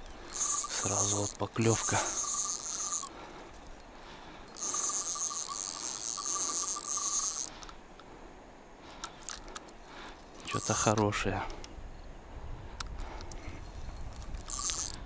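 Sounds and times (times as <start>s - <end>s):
fishing reel ratchet buzzing: 0.0s - 7.6s, 10.4s - 11.0s, 13.6s - 15.0s.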